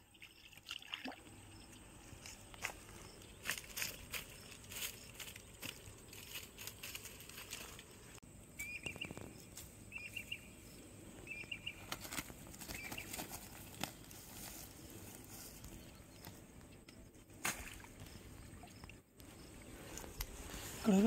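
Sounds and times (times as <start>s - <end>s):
grass rustling: 2.0s - 18.4s, 19.2s - 21.0s
bird chirping: 8.6s - 12.0s, 12.6s - 13.2s
fish flapping on grass: 11.8s - 15.6s.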